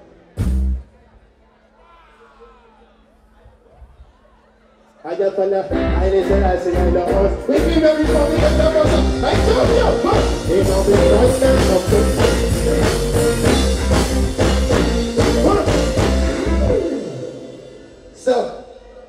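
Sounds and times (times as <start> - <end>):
live reggae band playing: 0.0 - 1.2, 5.5 - 19.0
bass pulse: 5.8 - 18.2.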